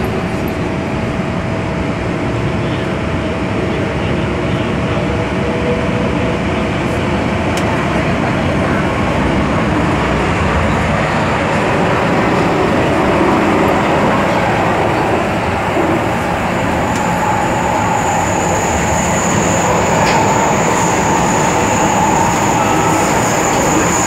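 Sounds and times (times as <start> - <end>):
train wheels rumbling: 4.9 - 24.0
high-pitched steady whine: 10.6 - 24.0.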